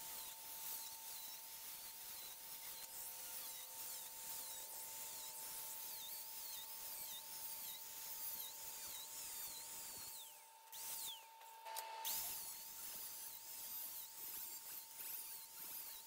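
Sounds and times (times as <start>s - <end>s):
angle grinder cutting steel mesh: 0.0s - 16.0s.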